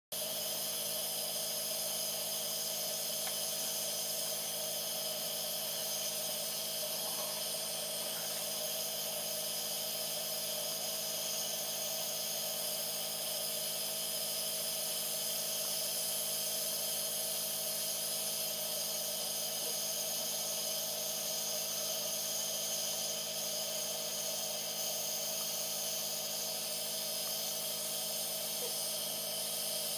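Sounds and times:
steady hiss: 0.2 - 29.9
constant hum: 5.6 - 8.8.

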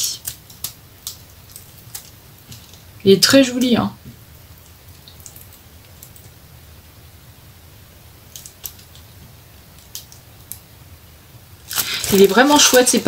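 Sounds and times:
plastic film crinkling: 0.0 - 3.0, 8.3 - 10.6, 11.6 - 13.0.

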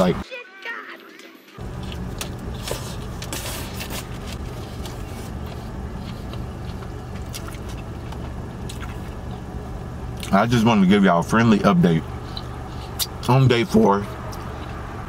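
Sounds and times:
car idling hum: 1.6 - 15.0
chewing clicks: 6.0 - 9.4.

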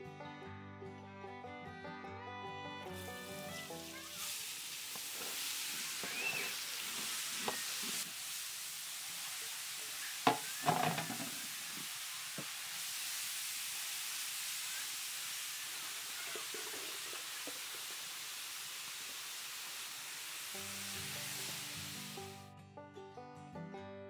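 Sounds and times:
vegetables sizzling in hot oil: 2.9 - 22.4
spatula knocks against pan: 10.3 - 11.4.

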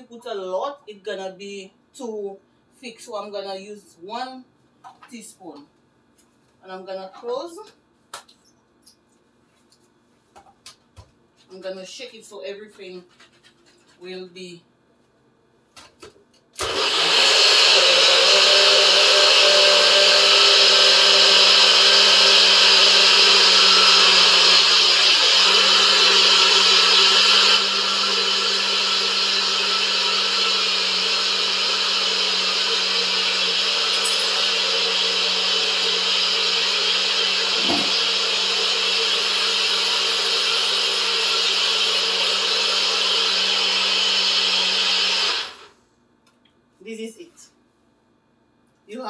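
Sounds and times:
blender motor running: 16.6 - 45.7.

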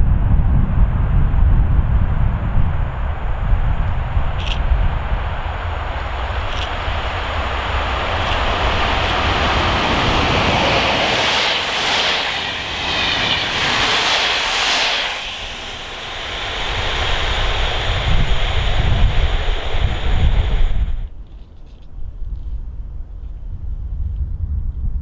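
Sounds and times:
train passing by: 2.0 - 21.2.

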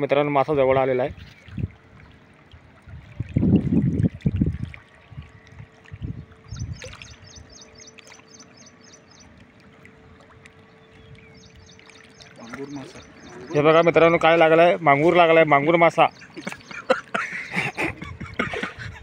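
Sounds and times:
wind rumbling on microphone: 0.5 - 7.6, 17.6 - 19.0
faint steady hum: 1.4 - 19.0.

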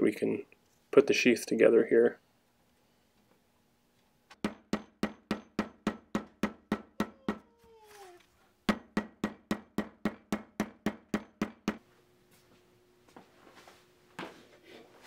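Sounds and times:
hammer tapping leather on stone: 4.4 - 7.2, 8.7 - 11.8.

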